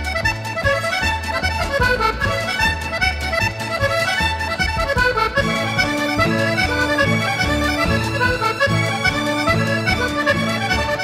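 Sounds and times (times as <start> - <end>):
accordion tune with bass beat: 0.0 - 11.0.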